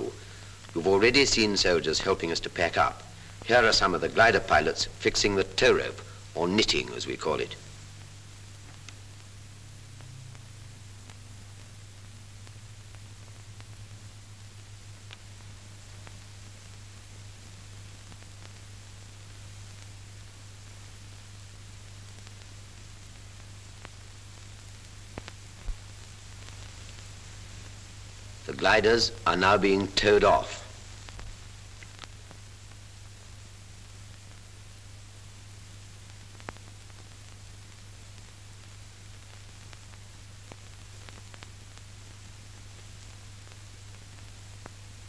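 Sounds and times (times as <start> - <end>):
film soundtrack hiss and hum: 0.0 - 45.0
faint clicks: 8.6 - 9.0, 25.1 - 25.8, 31.0 - 32.8.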